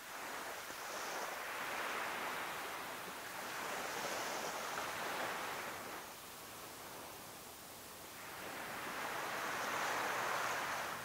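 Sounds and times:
surf washing onto beach: 8.2s - 11.0s.

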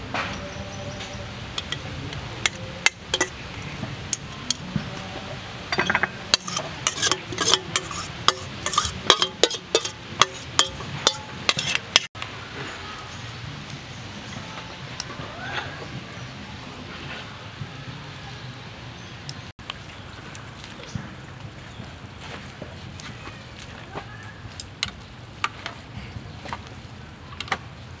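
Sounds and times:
spoon and chopsticks clinking on metal: 1.6s - 1.9s, 2.5s - 3.4s, 5.7s - 12.1s.

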